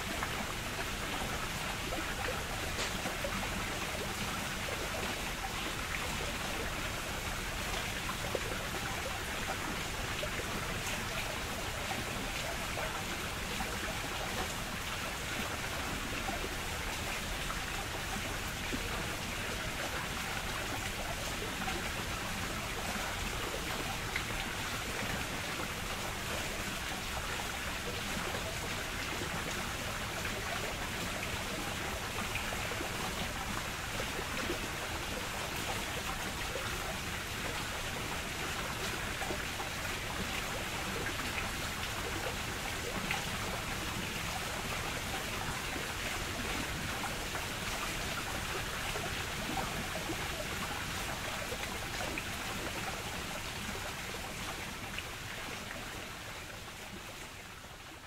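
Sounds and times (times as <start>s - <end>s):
water rushing and spattering: 0.0s - 58.0s.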